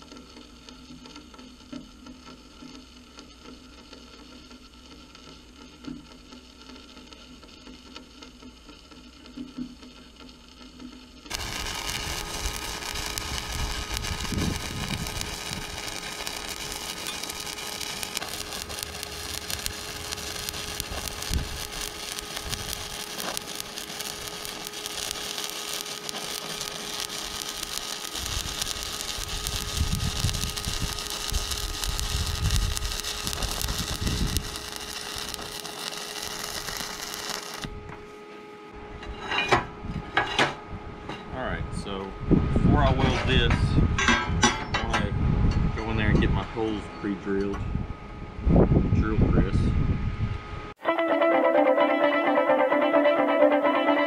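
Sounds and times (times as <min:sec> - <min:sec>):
welding arc crackling: 0:00.0 - 0:37.8.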